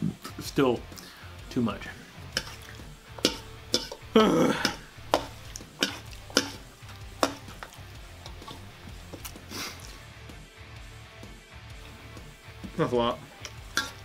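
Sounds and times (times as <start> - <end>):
metal fork scraping a steel bowl: 2.3 - 4.0, 4.6 - 8.7, 13.4 - 14.0.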